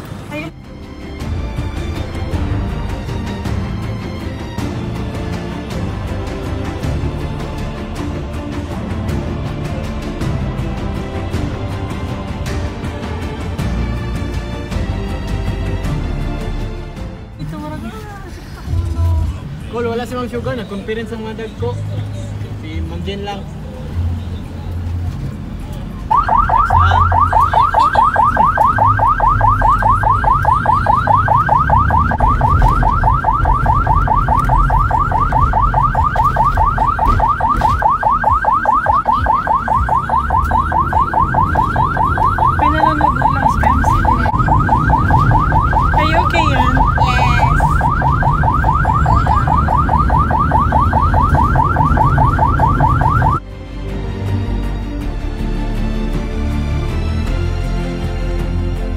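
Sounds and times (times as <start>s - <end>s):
vehicle rumble: 0.0s - 16.5s, 17.3s - 54.2s
electronic siren yelping: 26.1s - 53.4s.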